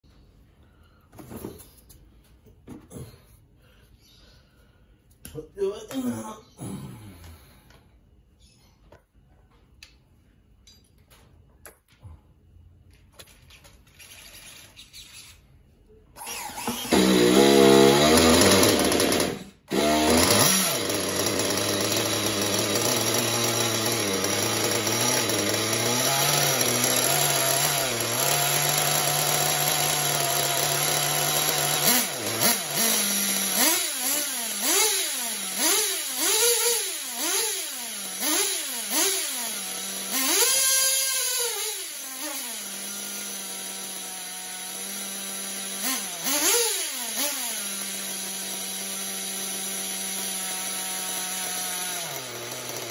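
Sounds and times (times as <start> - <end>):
model engine idling and revving: 16.2 - 52.9.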